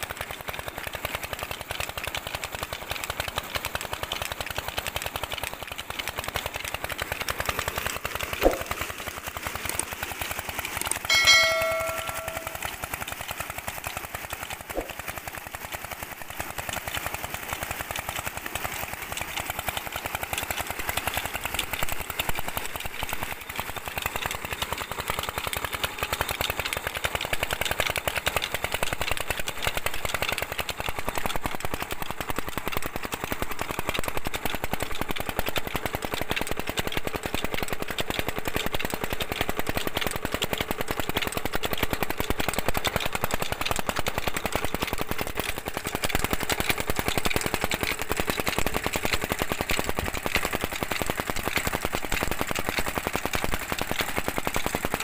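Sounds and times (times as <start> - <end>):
water gushing into a tank: 13.0 - 55.0.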